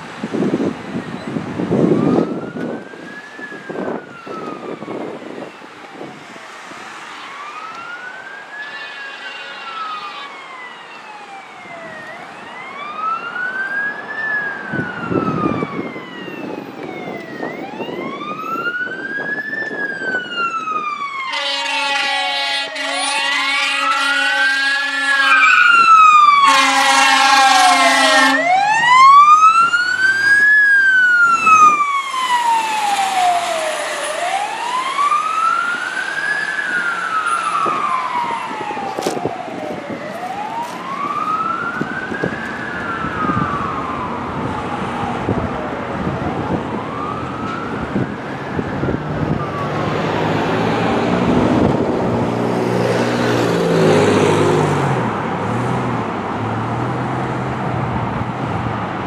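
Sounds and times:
fire engine siren wailing: 0.0s - 59.0s
air horn blasts: 21.2s - 25.7s, 26.4s - 28.6s.

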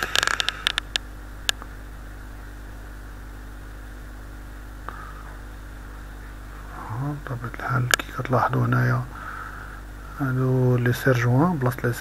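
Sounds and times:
microphone hiss and hum: 0.0s - 12.0s.

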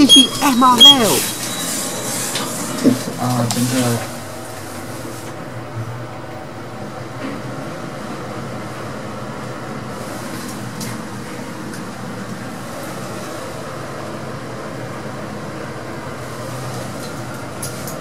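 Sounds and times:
lift humming and hissing: 0.0s - 7.0s.

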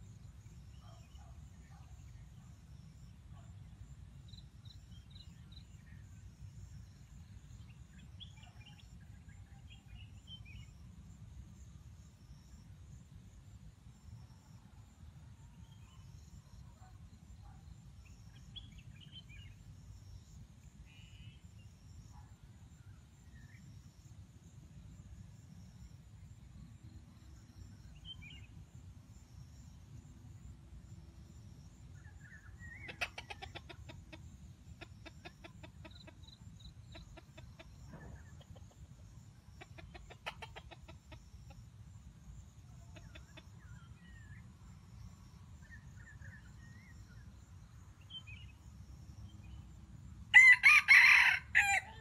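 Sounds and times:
distant rooster crowing: 50.3s - 52.0s
loud close rooster crow: 50.3s - 52.0s.

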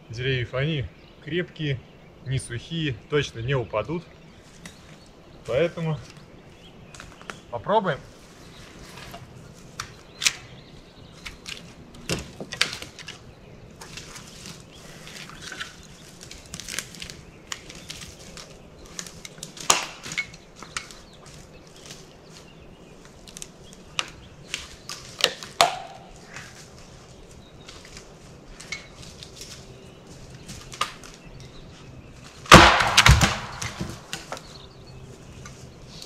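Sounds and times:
wood knocking and cracking: 11.2s - 13.2s, 15.2s - 22.0s, 23.3s - 26.5s, 30.4s - 31.2s, 32.4s - 34.6s.

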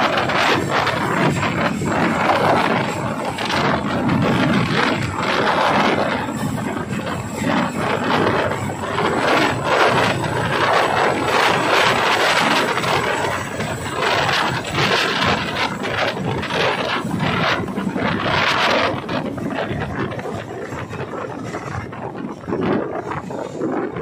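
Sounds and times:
helicopter rotors and engines: 0.0s - 24.0s.

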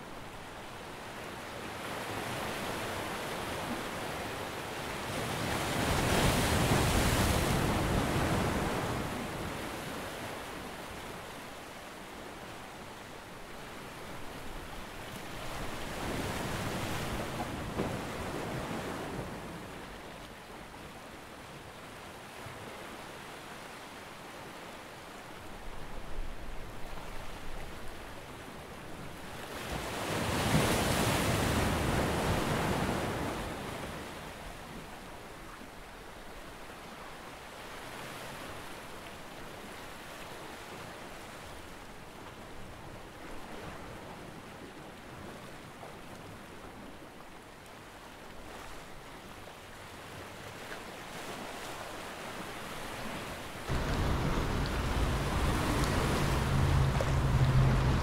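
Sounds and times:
water lapping against stone wall: 50.5s - 58.0s
whooshing rush: 53.7s - 58.0s
wind on microphone: 53.7s - 58.0s.

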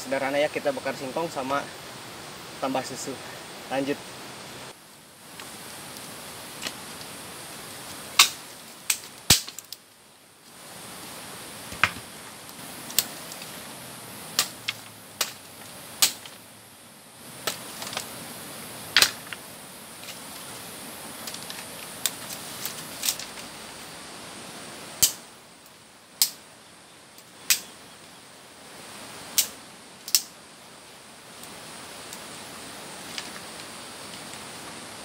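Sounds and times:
steady background hiss: 0.0s - 35.0s
dry sticks cracking: 5.4s - 7.2s, 7.9s - 9.9s, 11.7s - 13.6s, 14.3s - 16.4s, 17.4s - 18.1s, 18.9s - 19.4s, 21.1s - 23.6s, 25.0s - 25.2s, 26.2s - 26.4s, 29.4s - 30.3s, 33.0s - 34.4s.

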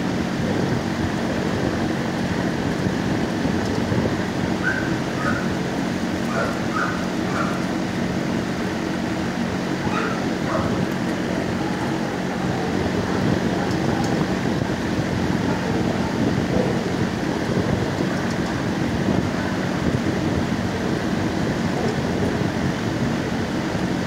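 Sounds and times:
dogs barking and yipping: 4.6s - 5.5s, 6.3s - 7.7s, 9.8s - 10.8s.

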